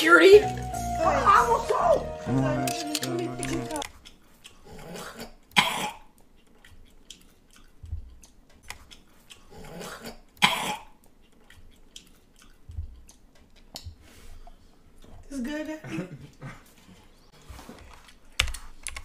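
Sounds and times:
person coughing: 0:05.0 - 0:06.1, 0:15.8 - 0:16.7.

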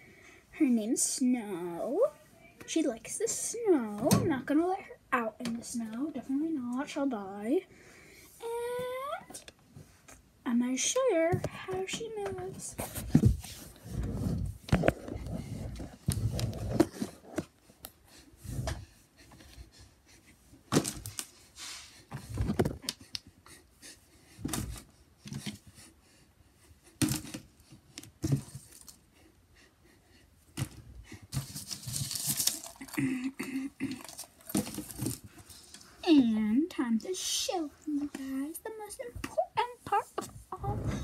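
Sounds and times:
rustling: 0:30.6 - 0:33.1, 0:33.8 - 0:36.0.

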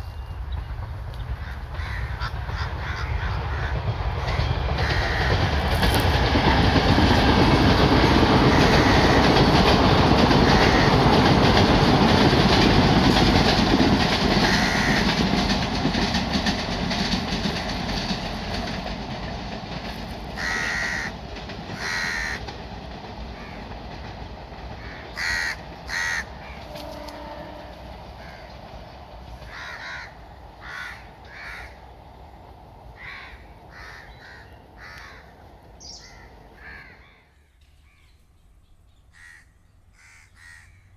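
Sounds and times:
train rumbling on track: 0:00.0 - 0:37.4
crows cawing: 0:01.4 - 0:05.6, 0:08.4 - 0:11.4, 0:14.4 - 0:15.5, 0:20.3 - 0:21.2, 0:21.8 - 0:22.5, 0:23.4 - 0:23.7, 0:24.8 - 0:28.7, 0:29.4 - 0:31.9, 0:33.0 - 0:38.0, 0:39.1 - 0:40.9.

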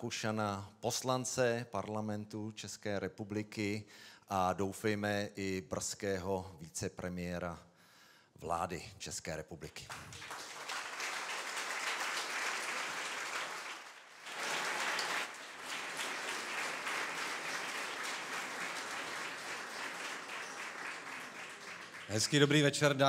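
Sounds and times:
audience applauding: 0:09.9 - 0:23.0.

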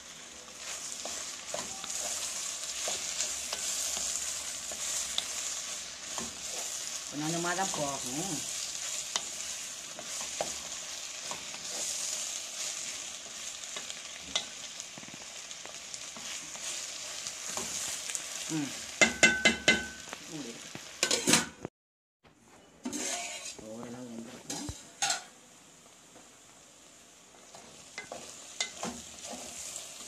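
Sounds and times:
vegetables sizzling in oil: 0:00.0 - 0:21.6, 0:22.8 - 0:30.0
spatula scraping pan: 0:00.6 - 0:15.2, 0:22.8 - 0:23.7, 0:27.6 - 0:30.0.

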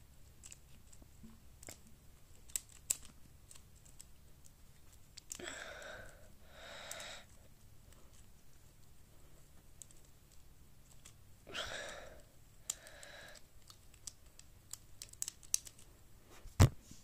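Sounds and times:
puzzle cube clicking: 0:01.6 - 0:04.1, 0:12.6 - 0:15.9.

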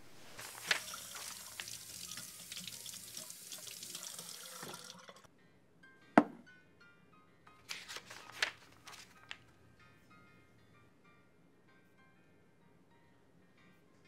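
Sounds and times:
faucet running into steel sink: 0:00.4 - 0:05.3.

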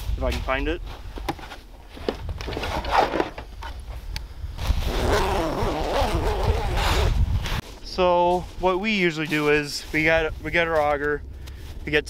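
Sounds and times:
bag zipper rasping open: 0:02.5 - 0:03.4, 0:04.8 - 0:07.6.

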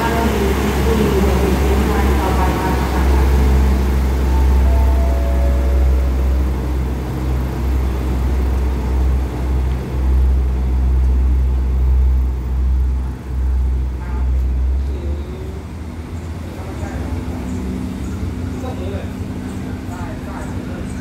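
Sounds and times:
train engines rumbling: 0:00.0 - 0:21.0
train wheels on rails: 0:00.0 - 0:21.0.

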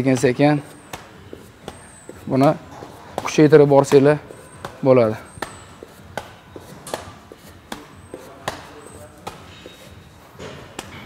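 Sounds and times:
kicks slapping on thigh: 0:00.2 - 0:01.8, 0:05.4 - 0:09.6.

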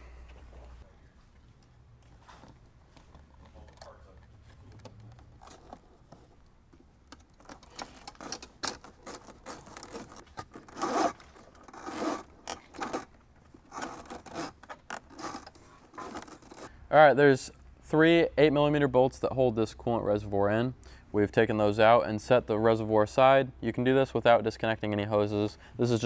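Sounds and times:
wire scraping behind plastic trim: 0:07.1 - 0:16.7.

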